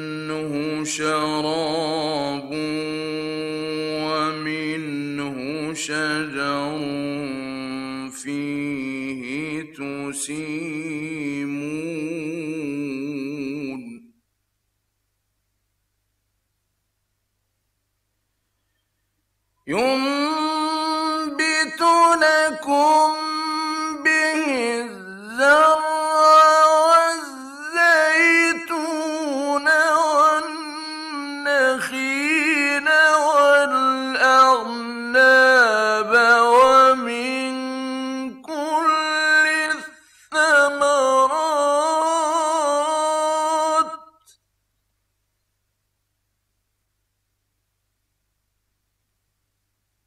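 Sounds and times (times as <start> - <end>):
man chanting melodically: 0.0 - 14.1, 19.7 - 44.3.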